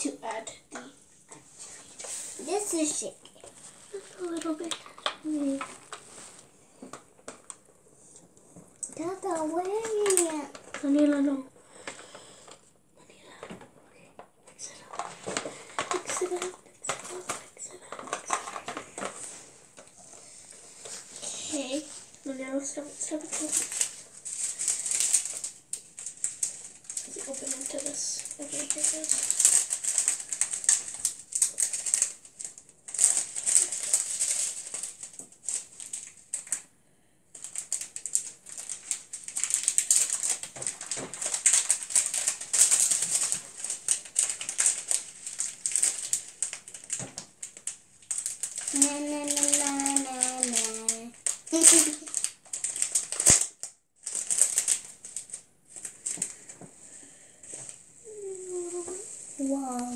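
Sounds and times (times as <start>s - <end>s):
plastic bag crinkling: 0.0s - 36.7s, 37.3s - 59.9s
foam beads rattling against plastic: 2.4s - 6.1s, 8.9s - 11.4s, 15.0s - 36.6s, 37.3s - 56.5s.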